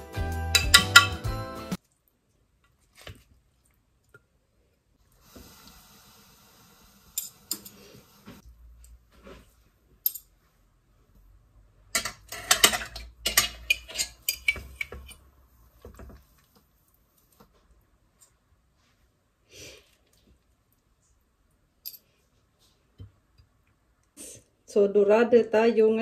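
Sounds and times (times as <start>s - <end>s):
cutlery clinking on ceramic dish: 0.5s - 1.2s, 12.0s - 15.2s.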